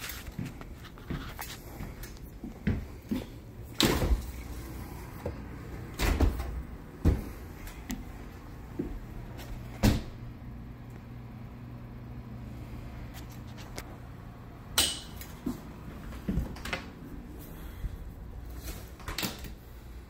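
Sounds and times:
steady low hum: 0.0 - 20.0
refrigerator doors opening and shutting: 2.6 - 7.9, 9.1 - 10.3, 18.4 - 19.8.

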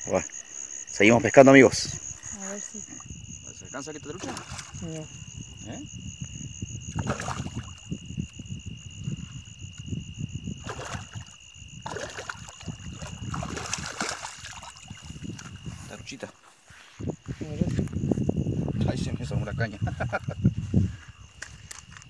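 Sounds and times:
insects shrilling: 0.0 - 9.0
fish splashing at water surface: 4.2 - 4.9, 7.0 - 7.9, 10.6 - 15.4.

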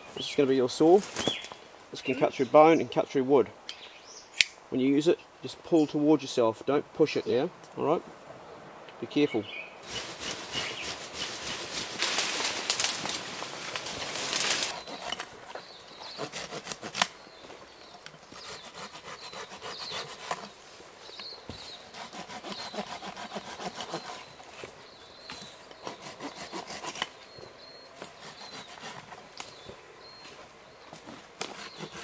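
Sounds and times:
handsaw cutting a branch: 9.8 - 13.1, 13.8 - 17.1, 18.2 - 20.6, 21.6 - 24.5, 25.8 - 27.2, 28.0 - 29.2, 31.4 - 32.0.

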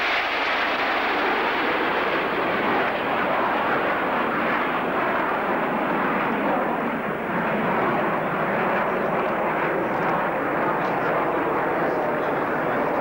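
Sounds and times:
jet engines rushing overhead: 0.0 - 13.0.

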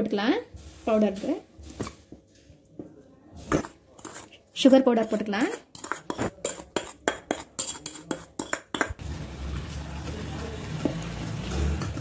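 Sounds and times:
whisk clinking against steel bowl: 5.0 - 9.0.

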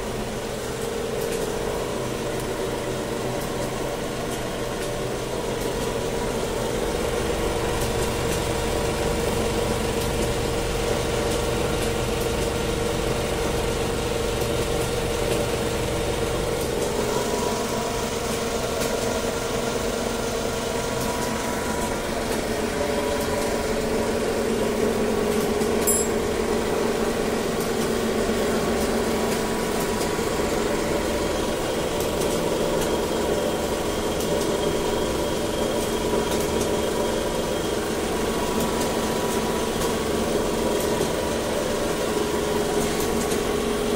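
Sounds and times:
industrial sewing machines stitching: 0.1 - 43.9.

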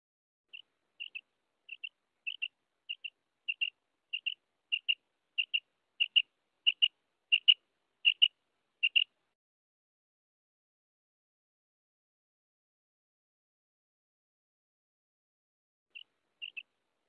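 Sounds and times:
quail calling: 0.5 - 9.1, 15.9 - 16.8.

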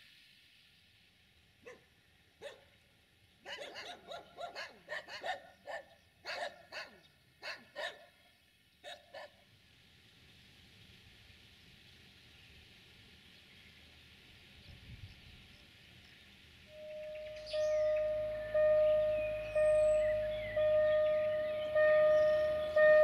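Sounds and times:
dog barking: 2.4 - 2.6, 3.4 - 8.1, 8.8 - 9.4.

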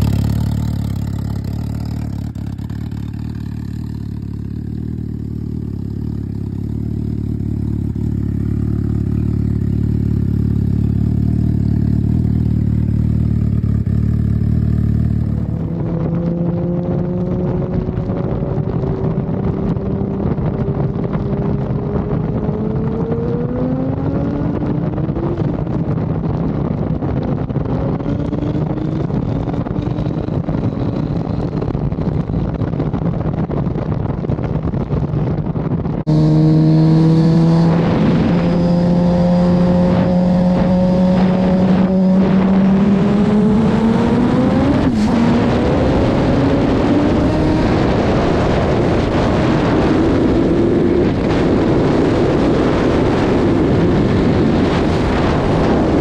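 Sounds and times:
motorcycle engine at speed: 0.0 - 56.0
wind rush: 0.0 - 56.0.

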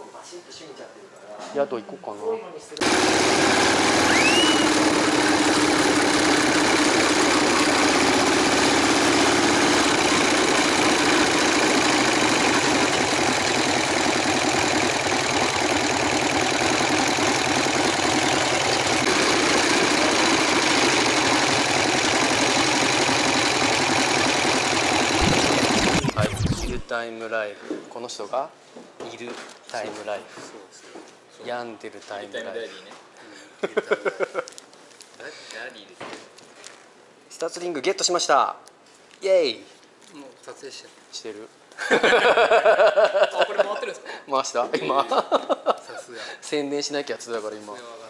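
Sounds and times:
motorcycle engine running: 4.6 - 26.7.

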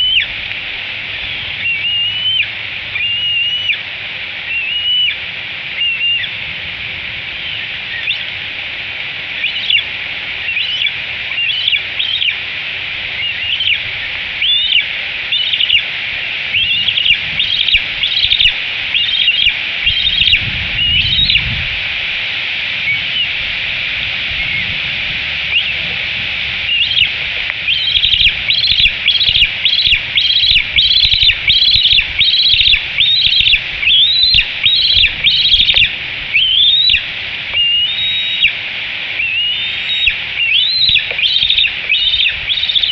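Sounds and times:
eaglet food-begging calls: 0.0 - 0.4, 1.1 - 3.8, 4.5 - 5.2, 5.8 - 6.4, 7.4 - 8.4, 9.4 - 12.4, 13.2 - 15.9, 16.5 - 21.5, 25.5 - 25.9, 26.6 - 38.6, 39.2 - 42.9.

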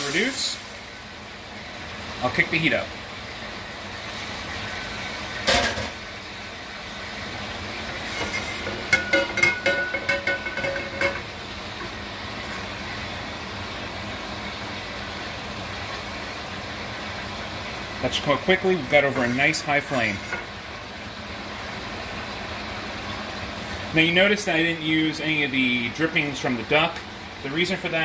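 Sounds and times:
gas burner rushing: 0.0 - 28.0
metal pan scraping on grate: 8.0 - 11.2, 19.0 - 20.5.

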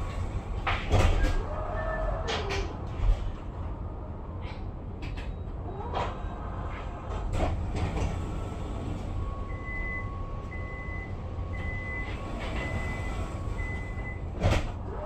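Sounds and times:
tram rumble: 0.0 - 15.0.

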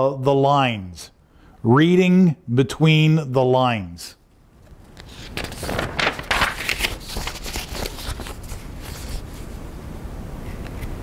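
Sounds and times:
rustling handling noise: 4.6 - 9.7.

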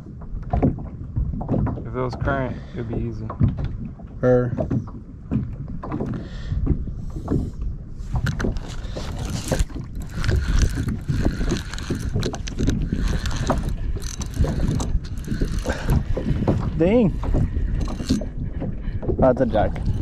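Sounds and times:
water sloshing against kayak: 0.0 - 20.0
fishing reel whirring and clicking: 8.1 - 18.6, 19.5 - 20.0.

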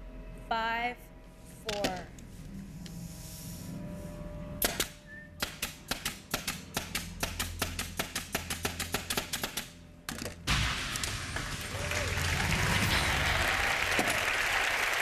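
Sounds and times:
nail guns firing into wood: 4.6 - 11.1
audience applause: 10.8 - 15.0.

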